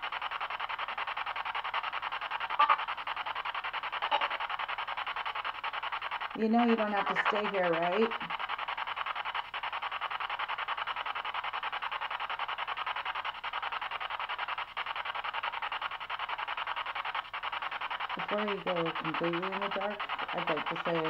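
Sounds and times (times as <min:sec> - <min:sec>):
pulsing radio static: 0:00.0 - 0:21.0.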